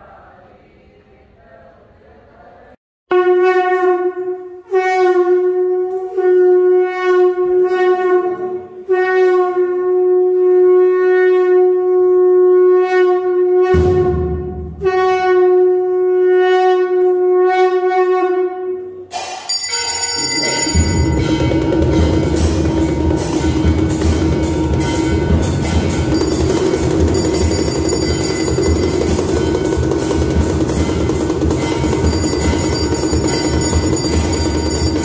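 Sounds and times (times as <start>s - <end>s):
conch shell blasts: 3.1s - 35.0s
drums: 13.7s - 15.0s, 19.1s - 35.0s
temple bells ringing: 19.2s - 35.0s.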